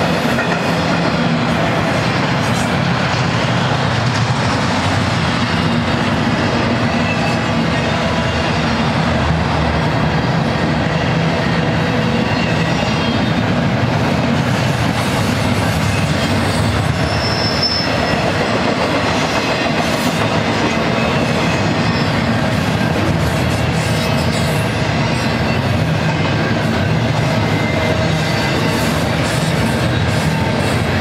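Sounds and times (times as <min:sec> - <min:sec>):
train wheels rumbling on rails: 0:00.0 - 0:31.0
high wheel squeal: 0:12.0 - 0:13.4, 0:15.6 - 0:18.4, 0:20.9 - 0:31.0.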